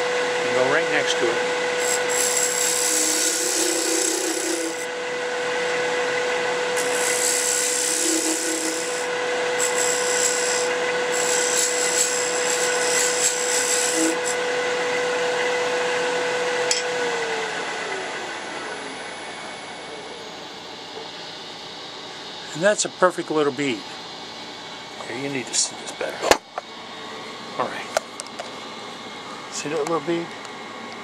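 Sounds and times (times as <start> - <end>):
wood lathe humming: 0.0 - 19.4
turning tool scraping wood: 1.8 - 4.9, 6.8 - 14.4.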